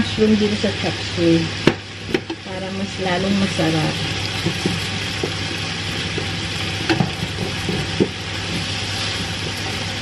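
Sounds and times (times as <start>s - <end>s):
vegetables sizzling in oil: 0.0s - 10.0s
spatula stirring in skillet: 4.0s - 10.0s
spatula knocking on pan: 4.4s - 8.7s.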